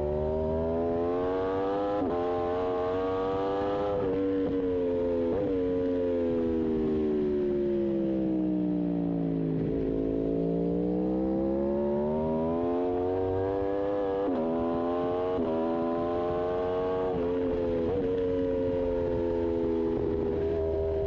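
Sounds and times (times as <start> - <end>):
motorcycle engine revving: 0.0 - 5.8, 9.6 - 21.0.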